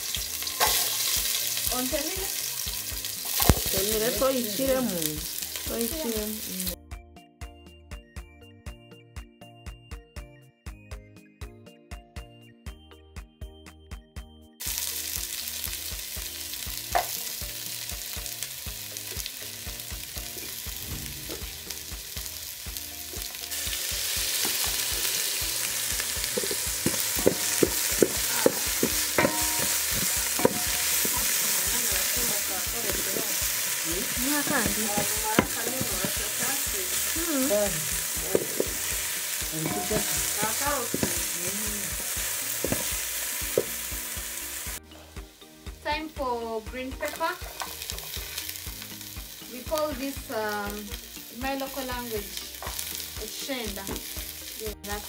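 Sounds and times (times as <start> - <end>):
onions sizzling in hot oil: 0.0 - 6.8, 14.6 - 55.0
spoon knocking against pot: 26.4 - 31.4, 39.7 - 41.3.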